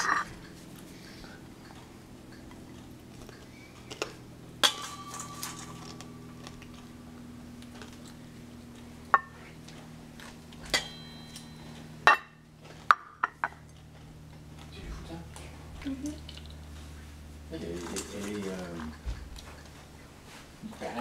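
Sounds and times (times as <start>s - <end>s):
tableware clinking on ceramic plate: 4.6s - 6.8s, 10.7s - 13.6s, 17.8s - 19.7s.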